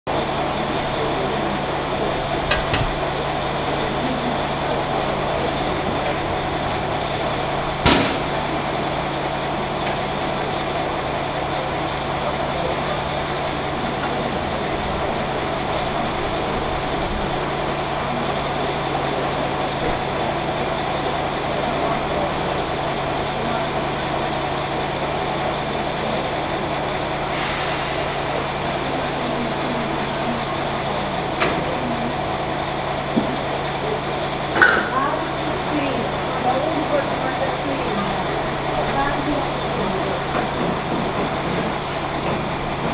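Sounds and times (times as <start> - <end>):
steam locomotive hum and hiss: 0.1 - 42.9.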